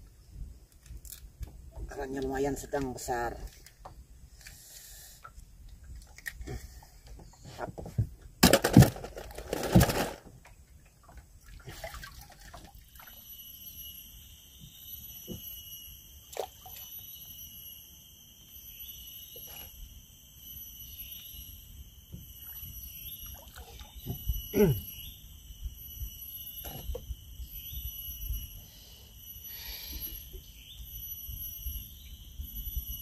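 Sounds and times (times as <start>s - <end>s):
high-pitched multi-tone whine: 12.6s - 33.0s.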